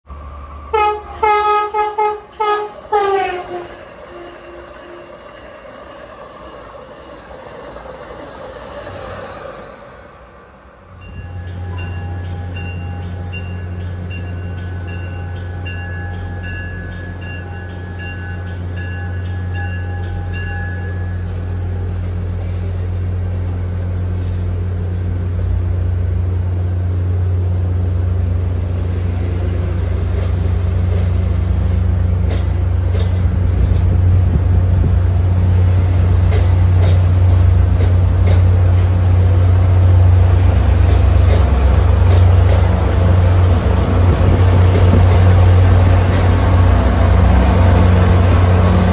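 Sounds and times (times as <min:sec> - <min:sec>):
train low drone: 0:00.0 - 0:48.9
bell ringing: 0:11.0 - 0:21.4.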